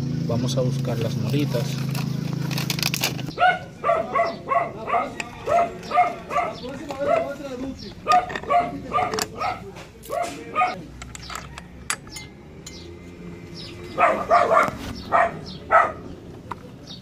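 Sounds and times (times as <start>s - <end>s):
dog barking: 3.3s - 7.4s, 8.0s - 10.8s, 14.0s - 16.1s
metallic clicks of parts handled: 11.0s - 12.8s.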